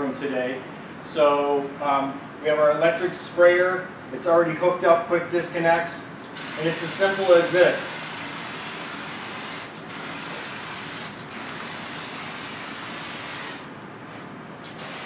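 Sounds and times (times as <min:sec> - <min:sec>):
electric sprayer hissing: 0:06.4 - 0:13.7, 0:14.7 - 0:15.0.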